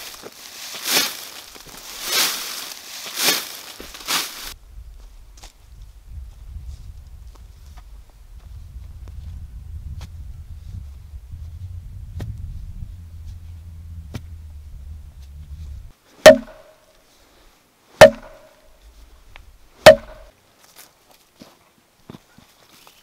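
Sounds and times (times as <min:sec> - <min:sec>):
low rumble: 0:04.5 - 0:15.9.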